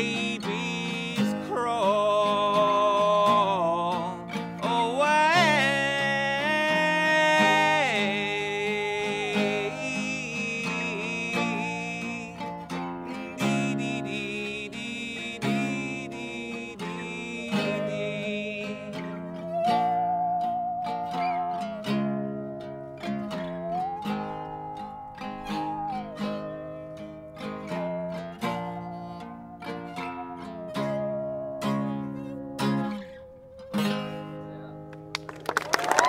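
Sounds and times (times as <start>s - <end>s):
man singing: 0.0s - 20.0s
acoustic guitar strumming: 0.0s - 35.4s.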